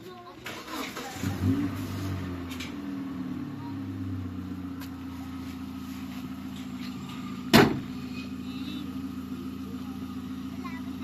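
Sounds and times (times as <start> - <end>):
truck engine idling: 0.0 - 11.0
car door slamming: 7.4 - 8.0.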